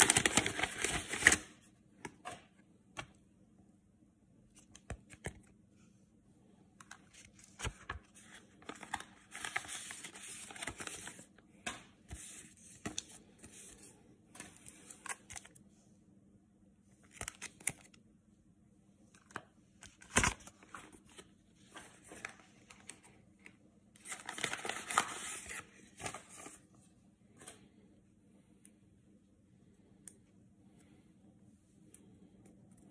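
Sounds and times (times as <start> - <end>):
plastic sleeves rustling and crinkling: 0.0 - 1.6, 6.8 - 11.4, 19.3 - 26.8.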